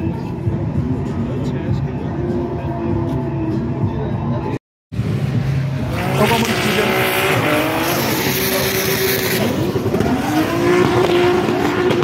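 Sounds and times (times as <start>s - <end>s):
car engine revving high: 5.0s - 12.0s.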